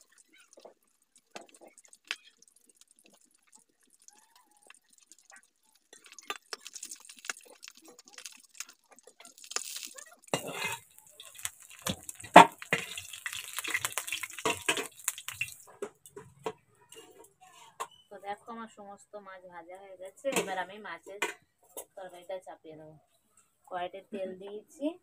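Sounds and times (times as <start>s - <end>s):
fish frying in hot oil: 0.0s - 16.3s
metal spatula scraping wok: 9.5s - 16.3s.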